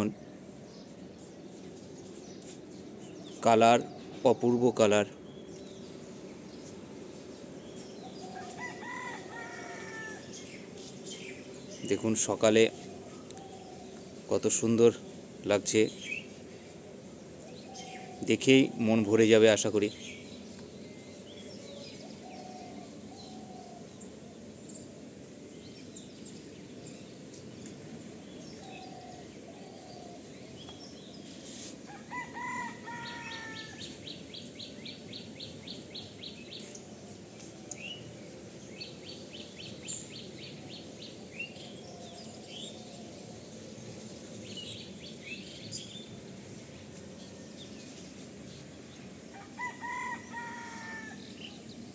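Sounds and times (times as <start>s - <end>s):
birds chirping: 0.0s - 51.9s
steady background noise: 0.0s - 51.9s
loud falling bird call: 8.1s - 10.5s, 31.9s - 34.0s, 49.4s - 51.5s.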